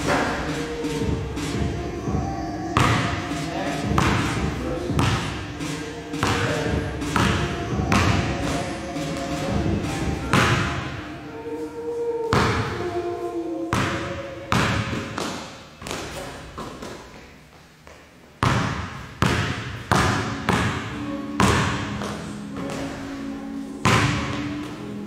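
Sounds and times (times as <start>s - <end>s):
basketball bouncing on gym floor: 2.8s - 3.2s, 3.8s - 5.4s, 6.2s - 8.4s, 18.4s - 22.9s, 23.8s - 24.5s.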